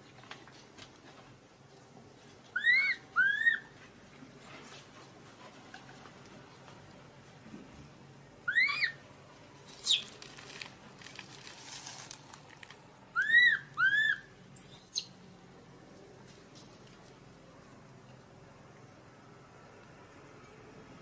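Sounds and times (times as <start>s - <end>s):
infant monkey crying: 2.6s - 3.7s, 8.5s - 9.0s, 13.2s - 15.0s.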